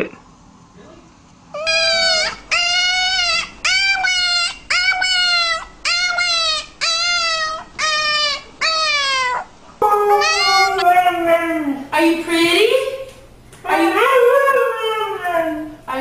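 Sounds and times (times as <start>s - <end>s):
puppy howling: 1.5s - 11.9s, 13.8s - 15.8s.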